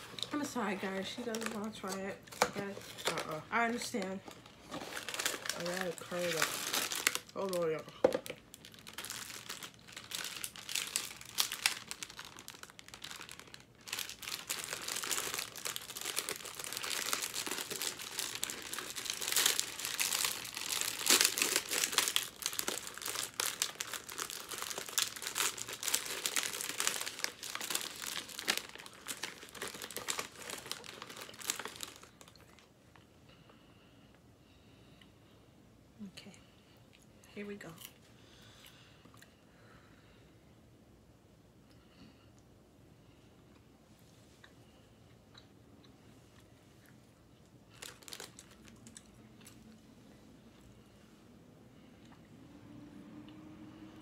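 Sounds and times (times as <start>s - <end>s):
plastic snack bag crinkling: 0.0s - 33.0s, 47.7s - 49.8s.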